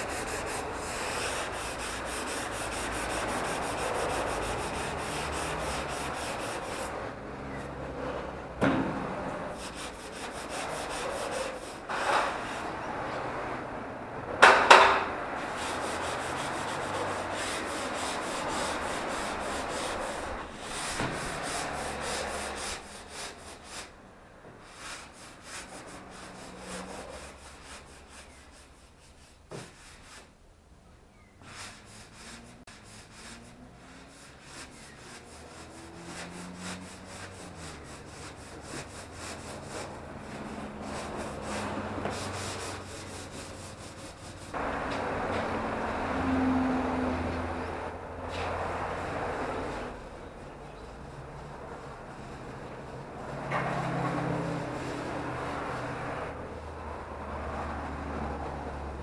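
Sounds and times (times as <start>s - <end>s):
sanding pad rubbing plaster: 0.0s - 7.0s, 9.5s - 12.7s, 15.4s - 23.9s, 24.6s - 30.3s, 31.4s - 44.6s, 53.8s - 56.2s.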